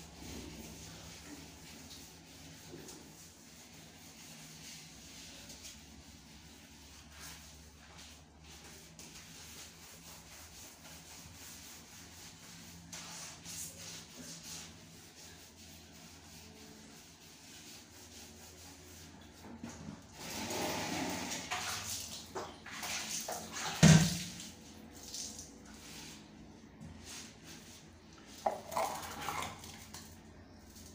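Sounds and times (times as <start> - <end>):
basin thumping on tile floor: 23.6 - 24.4.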